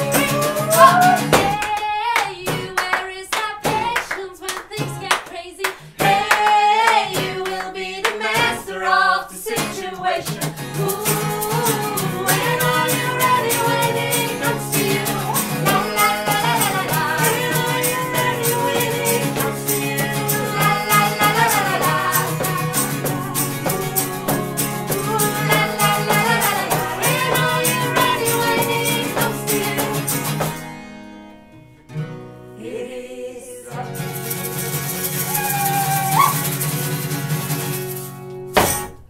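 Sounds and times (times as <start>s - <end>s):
hand claps: 0.0s - 8.5s, 12.1s - 30.7s
voices singing together: 0.0s - 30.6s, 32.6s - 34.6s, 35.2s - 36.5s
acoustic guitars: 0.0s - 39.0s.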